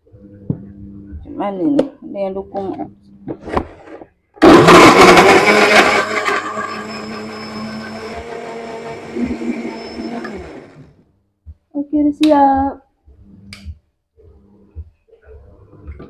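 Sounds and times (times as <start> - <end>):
blender motor grinding: 4.4 - 11.0.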